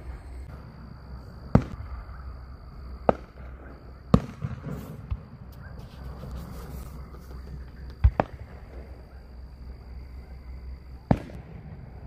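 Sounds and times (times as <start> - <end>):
distant firework bangs: 0.0 - 10.3, 11.0 - 12.0
small firework pops: 1.5 - 1.9, 3.0 - 6.4, 7.0 - 8.8, 11.1 - 11.7.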